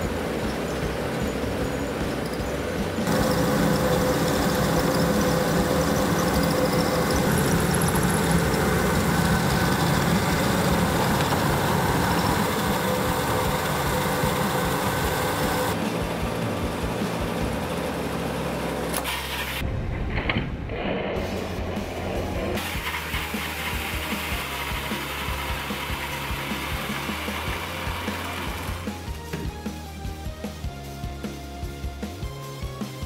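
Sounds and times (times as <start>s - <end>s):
treadmill motor and belt whirring: 0.0s - 19.6s, 21.0s - 29.4s
toy truck wheels rolling on belt: 1.8s - 15.8s, 22.6s - 28.8s.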